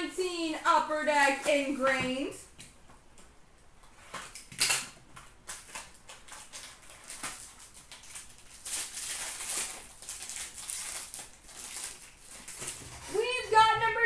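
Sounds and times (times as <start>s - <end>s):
foil wrapper tearing: 4.2s - 13.3s.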